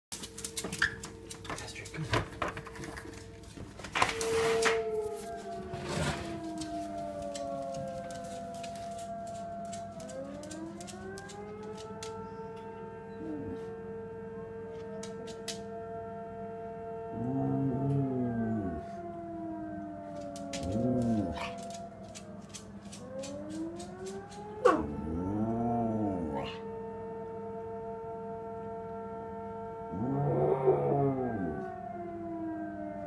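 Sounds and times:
fire station siren wailing: 0.2 - 33.0
dog howling: 17.1 - 18.9, 20.2 - 22.2, 23.3 - 26.7, 29.9 - 31.7.

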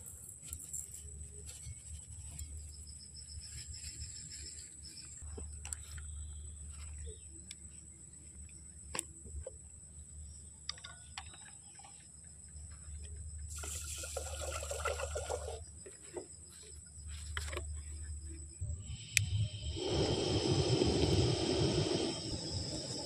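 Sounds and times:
water pouring from a jug: 13.5 - 15.6.

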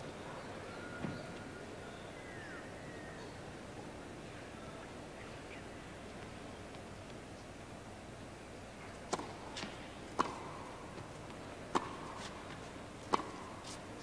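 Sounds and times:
tennis ball hit by rackets: 9.0 - 14.0.

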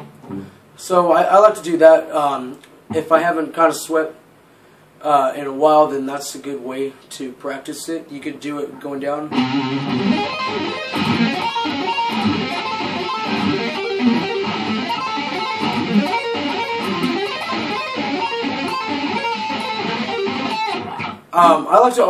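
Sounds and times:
electric guitar arpeggios: 9.3 - 21.6.

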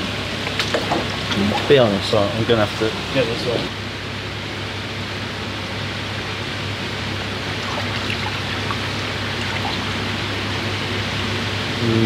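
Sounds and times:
low hum: 6.0 - 12.0
water rushing: 7.4 - 10.5
water splashes and drips: 7.5 - 10.0.

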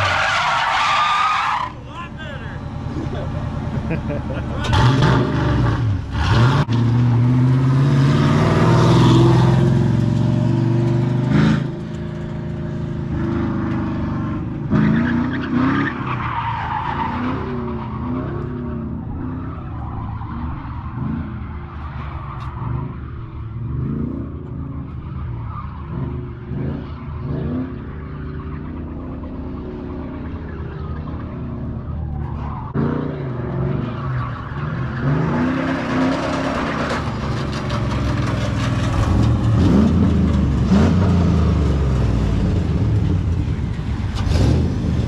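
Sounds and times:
tires squealing: 0.0 - 45.0
engine revving: 2.4 - 16.1, 25.8 - 45.0.

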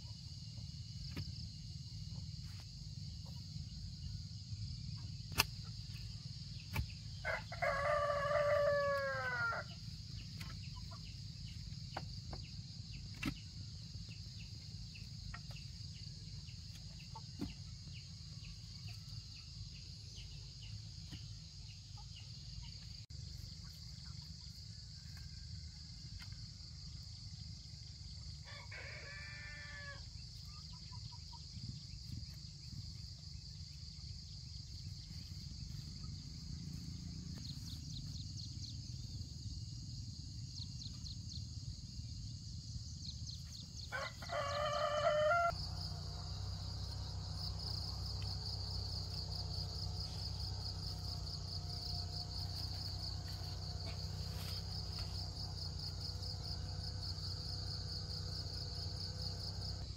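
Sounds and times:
insects chirring: 0.0 - 59.9
rooster crowing: 7.2 - 9.8, 28.4 - 30.1, 43.9 - 47.7.

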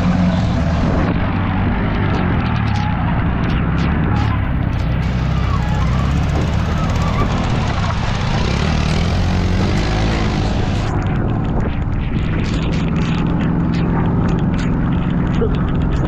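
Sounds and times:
motorcycle engine running: 0.0 - 16.0
tractor engine running: 0.0 - 16.0.

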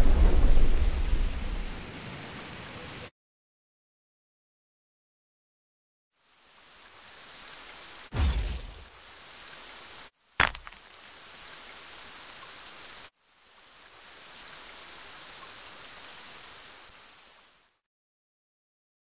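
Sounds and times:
heavy rain hissing: 0.0 - 3.1, 6.2 - 17.9
sharp loud crack: 8.1 - 8.9.

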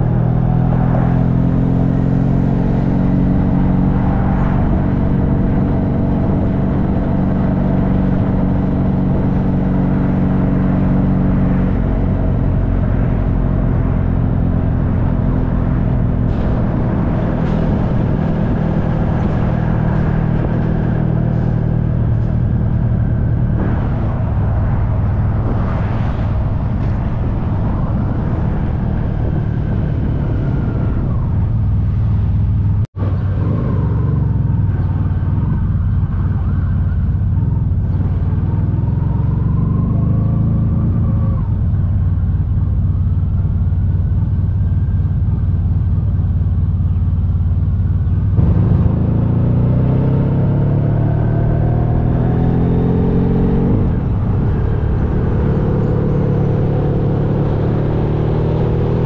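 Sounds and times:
wind and road noise: 0.0 - 59.0
motorcycle engine running: 26.5 - 59.0.

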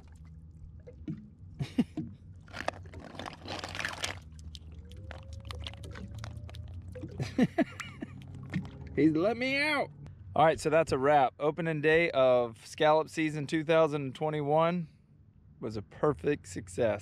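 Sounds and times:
small water splashes: 0.0 - 9.0.

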